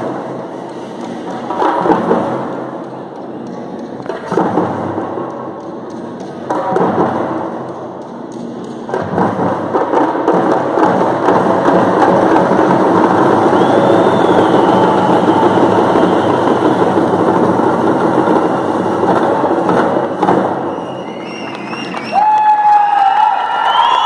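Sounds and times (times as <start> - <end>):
frame drums beaten fast: 6.4 - 21.1.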